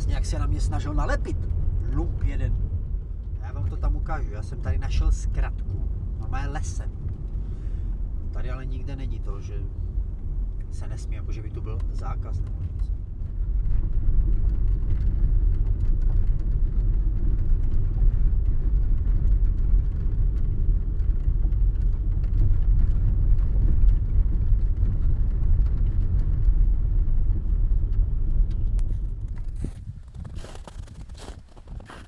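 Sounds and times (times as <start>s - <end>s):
car rumbling on gravel: 0.0s - 32.0s.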